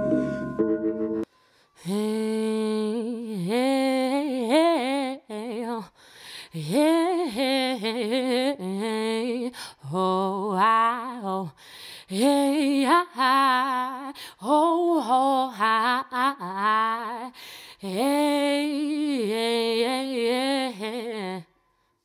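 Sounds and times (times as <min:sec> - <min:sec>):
instrumental music: 0:00.0 - 0:01.3.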